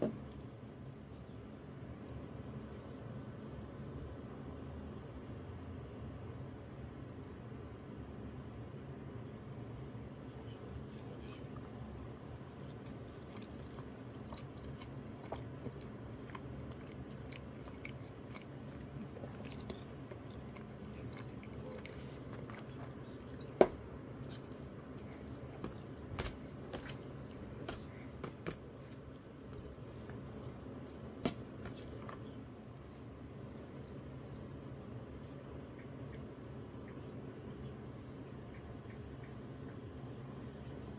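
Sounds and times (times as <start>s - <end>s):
low room hum: 0.0s - 40.9s
person chewing: 11.4s - 36.2s.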